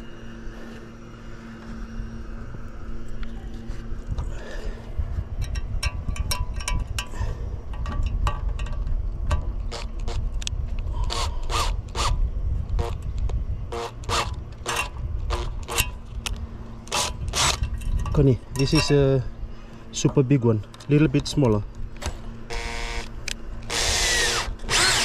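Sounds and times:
low steady rumble: 0.0 - 25.0
metal clip clicking and tapping: 5.4 - 7.1, 7.7 - 9.4.

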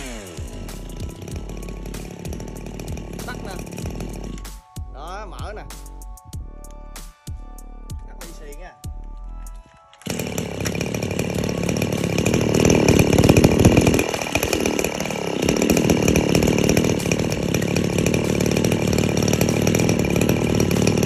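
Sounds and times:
brush cutter engine running: 0.0 - 4.6, 9.6 - 21.0.

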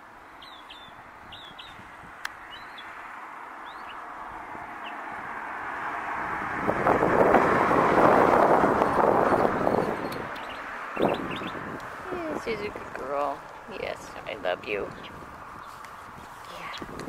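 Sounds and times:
high bird chirps: 0.4 - 1.8, 3.6 - 4.0, 8.8 - 11.7
vehicle passing: 1.6 - 16.9.

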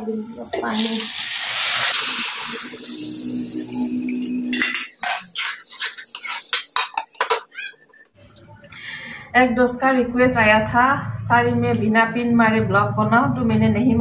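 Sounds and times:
water poured into hot wok: 0.5 - 5.0
metal ladle scraping wok: 1.0 - 7.5.

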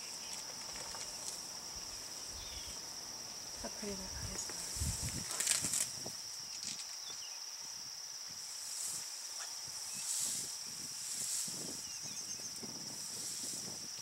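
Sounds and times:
insects chirring high-pitched: 0.0 - 14.0
elephant tearing grass: 4.8 - 6.0.

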